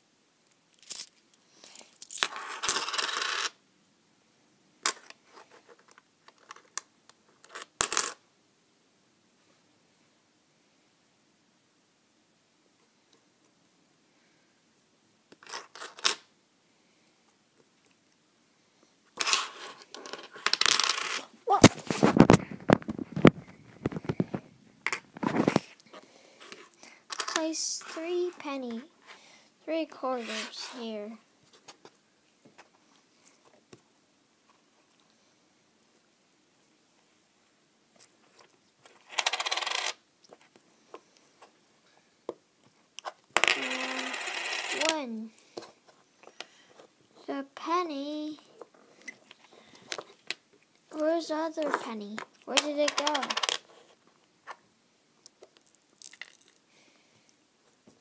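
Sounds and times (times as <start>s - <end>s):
coins rattling on a table: 0.7s - 3.6s, 7.4s - 8.2s, 15.4s - 16.2s, 19.2s - 21.3s, 39.0s - 40.0s, 43.4s - 45.0s, 52.6s - 53.7s.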